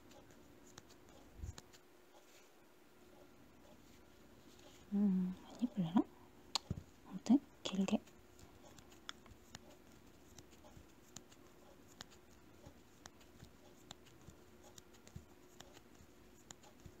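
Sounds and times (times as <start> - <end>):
crochet hook ticking on yarn: 7.8 - 17.0.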